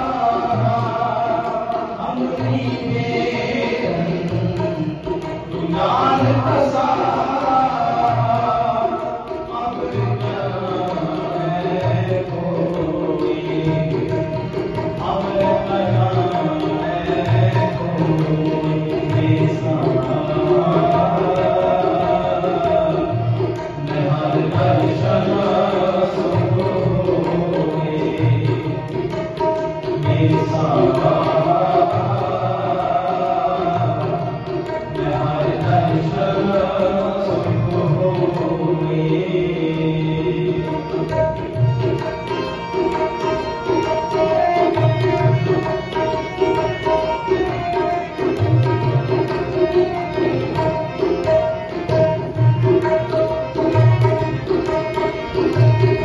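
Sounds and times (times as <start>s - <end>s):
men singing: 0.0s - 41.4s
harmonium melody: 0.0s - 56.0s
tabla beat: 0.0s - 56.0s.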